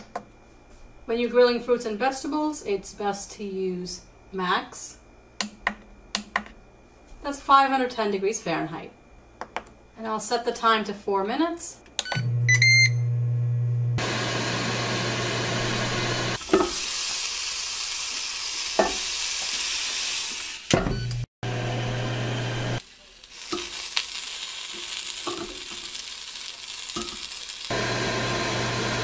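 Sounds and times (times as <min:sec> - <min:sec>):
onion slices sizzling on grill: 0:15.8 - 0:20.7, 0:22.3 - 0:29.0.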